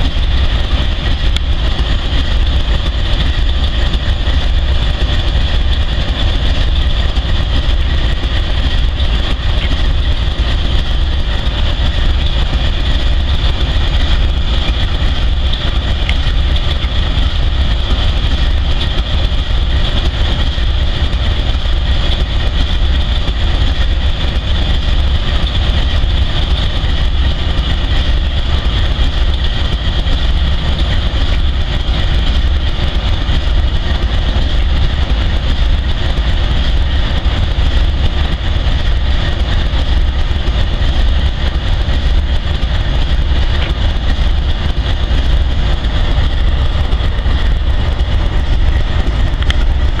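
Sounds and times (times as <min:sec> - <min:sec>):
high-pitched whine: 0:00.0 - 0:50.0
locomotive deep rumble: 0:00.0 - 0:50.0.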